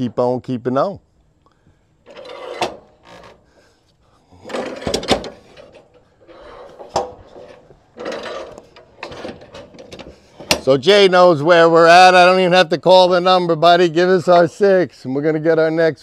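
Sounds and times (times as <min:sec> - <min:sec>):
wooden boards scraping and sliding: 0:02.1 - 0:03.4, 0:04.4 - 0:10.6.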